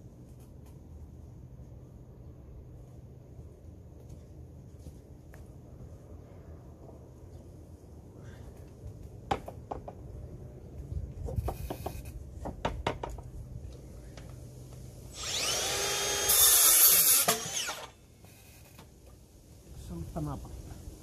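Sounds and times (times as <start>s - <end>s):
cordless drill running: 15.1s - 18.0s.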